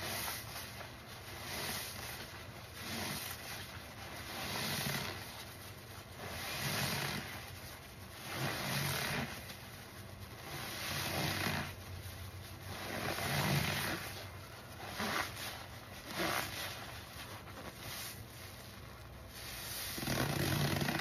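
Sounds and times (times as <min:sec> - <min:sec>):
sponge squelching in suds: 0:00.0 - 0:21.0.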